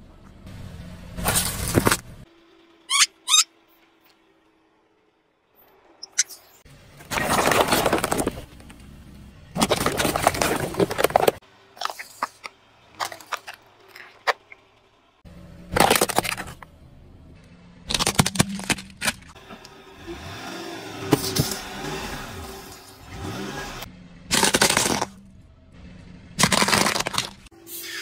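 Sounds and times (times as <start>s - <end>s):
tyre crushing plastic crunching: 7.0s - 8.7s, 9.5s - 14.4s, 15.7s - 16.6s, 17.9s - 19.3s, 24.3s - 25.2s, 26.4s - 27.5s
plastic snapping and cracking: 17.9s - 19.3s.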